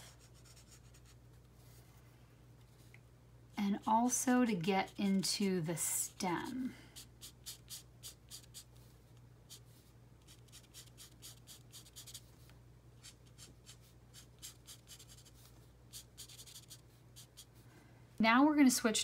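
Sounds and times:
marker scratching on card: 7.0s - 8.7s, 10.2s - 12.3s, 13.0s - 17.6s.

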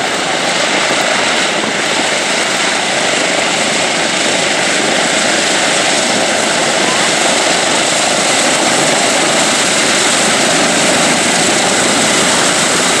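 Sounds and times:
propeller aircraft engines idling: 0.0s - 13.0s.

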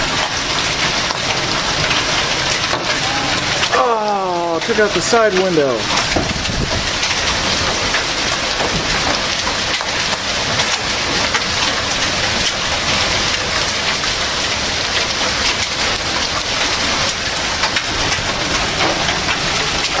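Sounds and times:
hailstones hitting: 0.0s - 20.0s
heavy rain hissing: 0.0s - 20.0s.

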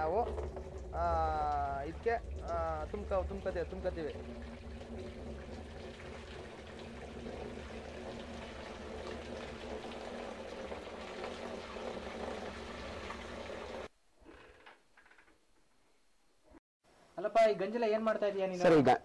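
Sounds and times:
liquid pouring into plastic drum: 0.0s - 13.9s.

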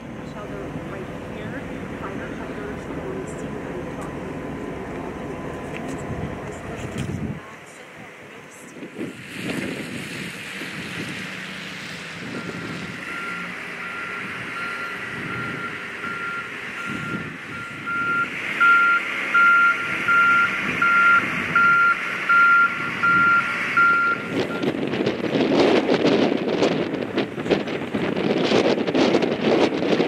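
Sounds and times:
engines rumbling: 0.0s - 30.0s
reversing alarm beeping: 12.3s - 24.7s.

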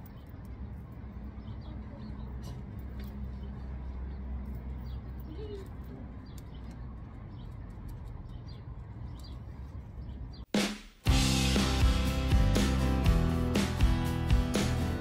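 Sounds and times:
small birds chirping: 0.0s - 10.5s.

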